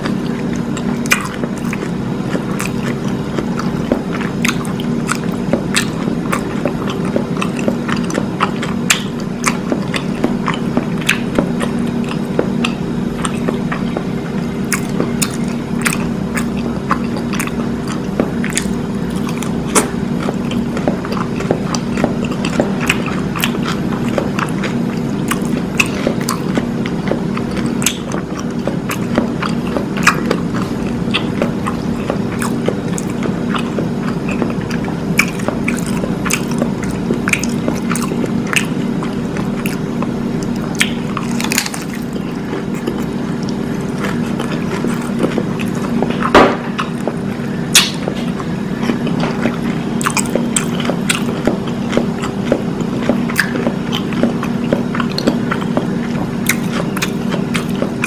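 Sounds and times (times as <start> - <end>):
steady low hum: 0.0 - 58.0
taco shell crunching: 0.0 - 58.0.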